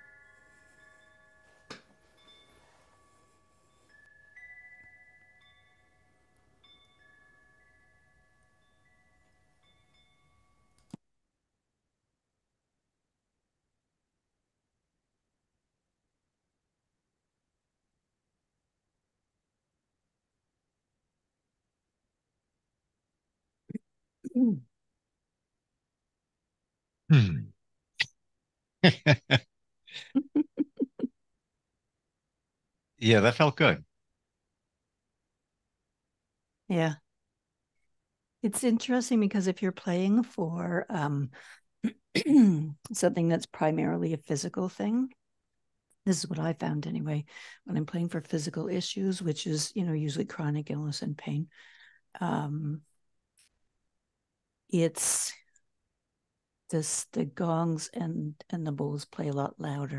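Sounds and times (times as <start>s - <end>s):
wind chime ringing: 0.0s - 10.8s
click: 10.8s - 11.0s
person laughing: 27.1s - 27.4s, 28.8s - 31.1s
person sighing: 27.1s - 27.5s, 28.8s - 30.3s.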